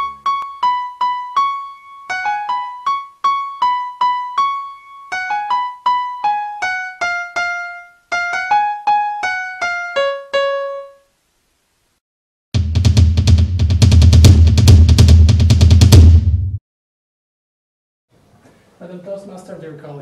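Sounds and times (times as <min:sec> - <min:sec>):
keyboard melody: 0:00.0 - 0:11.1.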